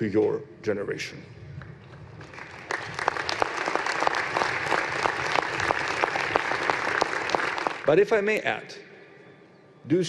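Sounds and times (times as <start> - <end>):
audience applauding: 2.2 - 7.9.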